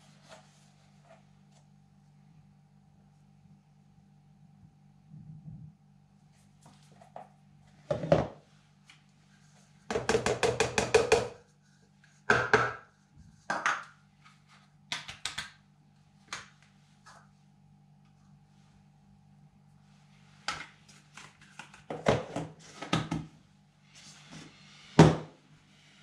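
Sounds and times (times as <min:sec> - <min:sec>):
low steady hum: 0:00.0 - 0:26.0
plastic tubs knocking on countertop: 0:07.9 - 0:08.4, 0:09.9 - 0:11.4, 0:12.3 - 0:12.8.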